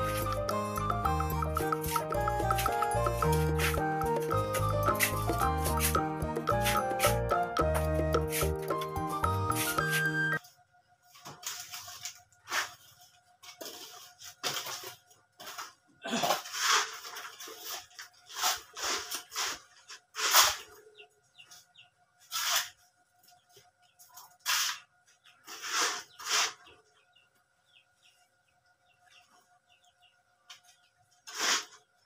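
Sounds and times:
trowel scraping concrete blocks: 31.2 - 31.9.

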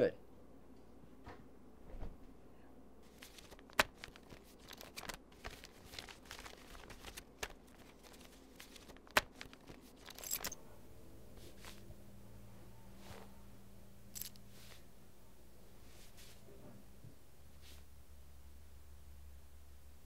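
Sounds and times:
food wrapper crinkling: 3.1 - 10.5.

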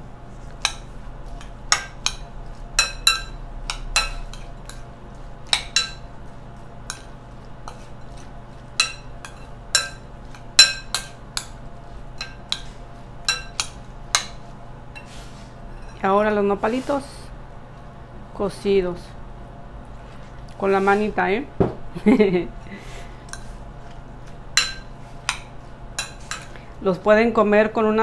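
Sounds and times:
metal spoon clinking glass bowl: 1.7 - 4.8, 10.6 - 11.5, 13.2 - 14.3.

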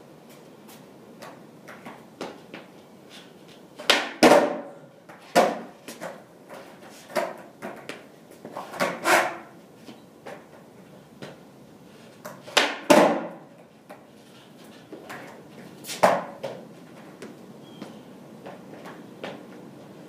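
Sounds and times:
skateboard deck clacking on concrete: 3.8 - 9.5, 12.2 - 14.1, 15.0 - 16.6.

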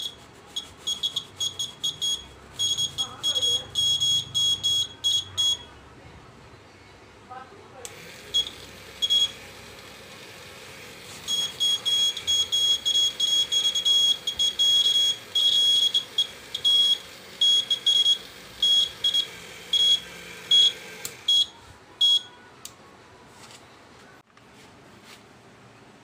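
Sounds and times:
piezo buzzer beeping: 0.0 - 5.6, 7.9 - 22.3.

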